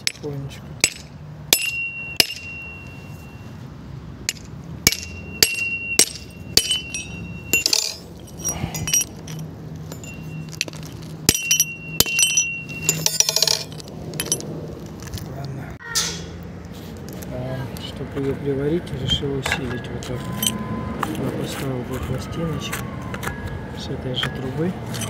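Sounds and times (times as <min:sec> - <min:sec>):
hammer striking steel: 0:00.0 - 0:02.9, 0:04.3 - 0:14.4.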